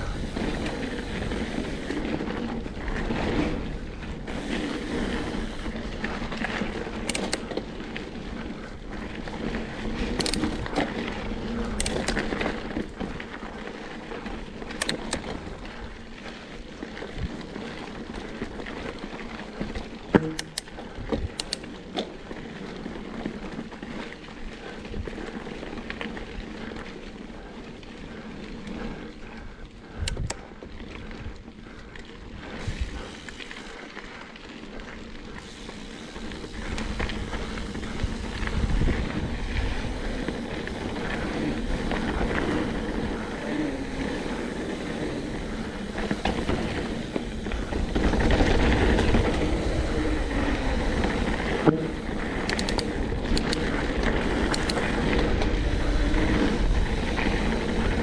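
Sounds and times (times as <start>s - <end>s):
wind noise: 0.0s - 13.4s, 28.8s - 33.8s, 35.2s - 58.0s
bike tyres rattling on dirt: 0.0s - 58.0s.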